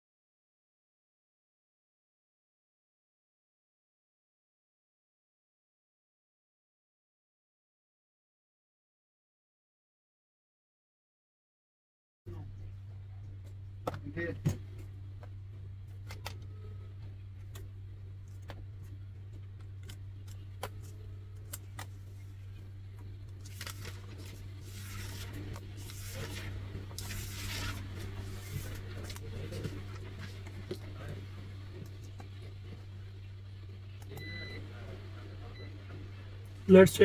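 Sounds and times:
steady low hum: 12.3 - 37.0
scratchy rustling: 23.4 - 32.8.

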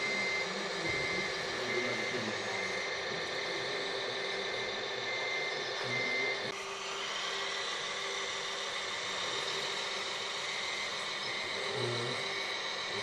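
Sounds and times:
model bulldozer motor hum: 0.0 - 13.0.

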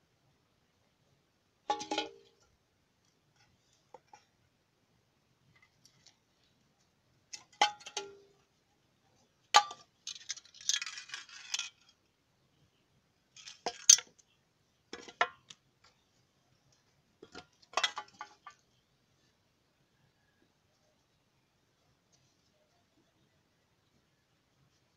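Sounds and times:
metal canister clinks and knocks: 1.7 - 2.4, 7.3 - 8.4, 14.9 - 15.6, 17.2 - 18.6.

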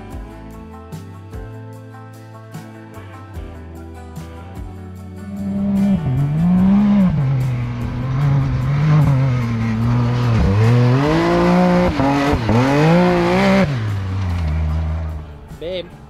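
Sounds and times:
engine revving hard: 5.3 - 15.2.

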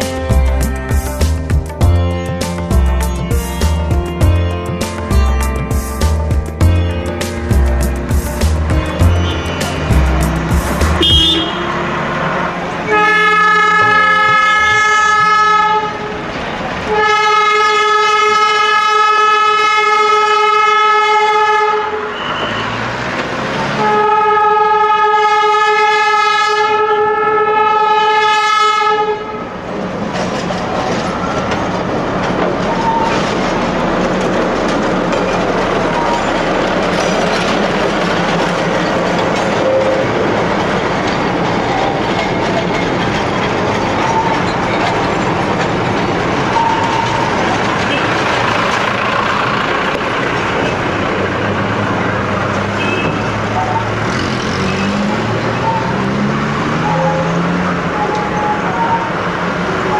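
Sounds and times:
locomotive engine running: 0.0 - 17.1, 29.5 - 59.9
locomotive horn blasts: 11.0 - 11.9, 12.8 - 16.2, 16.9 - 22.9, 23.7 - 29.5, 52.7 - 53.9.

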